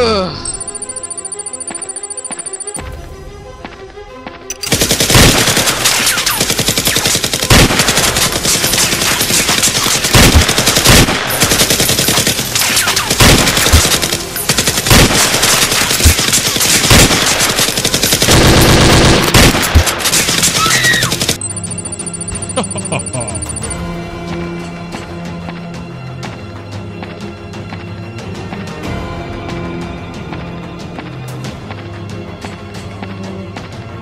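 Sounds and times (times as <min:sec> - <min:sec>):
machine-gun fire: 0:04.6 - 0:21.4.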